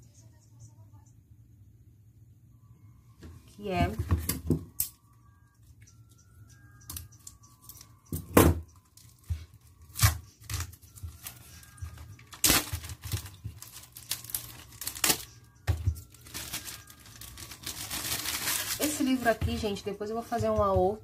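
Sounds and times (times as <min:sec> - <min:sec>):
plastic crinkling: 0:08.8 - 0:19.8
scissors cutting plastic: 0:09.8 - 0:19.4
plastic wrap ripping: 0:12.2 - 0:15.4, 0:16.0 - 0:19.3.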